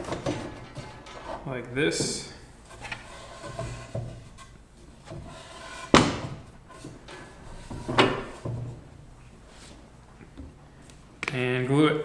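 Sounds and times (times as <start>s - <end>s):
loud wooden clunk: 0.0s - 1.4s, 5.9s - 8.8s
wooden boards knocking: 0.0s - 1.4s, 2.0s - 8.9s.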